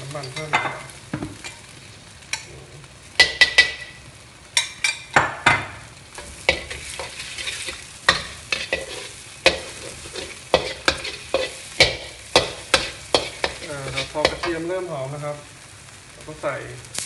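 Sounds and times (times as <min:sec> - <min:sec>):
garlic sizzling in oil: 0:00.0 - 0:17.0
spatula scraping a wok: 0:06.1 - 0:14.7.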